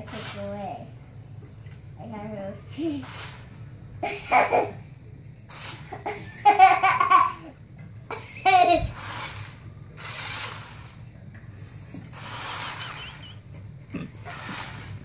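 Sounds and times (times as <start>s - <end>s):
toy car electric motor whirring: 0.0s - 0.8s, 2.8s - 3.6s, 5.5s - 6.2s, 8.4s - 11.1s, 12.0s - 13.5s, 14.2s - 15.0s.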